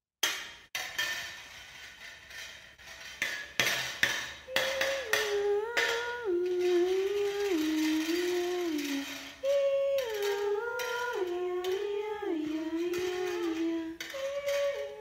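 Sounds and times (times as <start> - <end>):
person humming a slow melody: 4.5 - 15.0.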